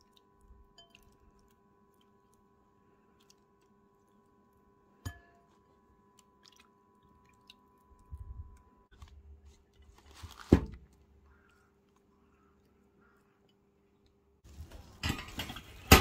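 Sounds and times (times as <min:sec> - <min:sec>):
soft handling noise: 0:08.9 - 0:11.1.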